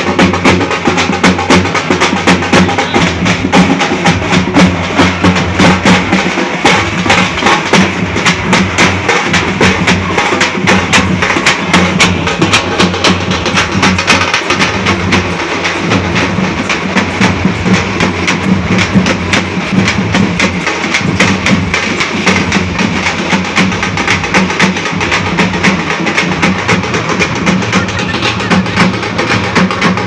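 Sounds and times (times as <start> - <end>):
frame drums beaten with sticks: 0.0 - 30.0.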